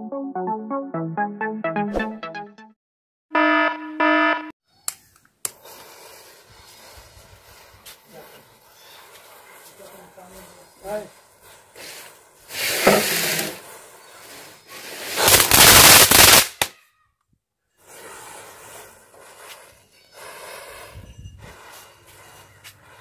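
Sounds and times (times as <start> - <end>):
matchsticks fizzing and crackling: 5.5 - 16.6, 17.8 - 20.8.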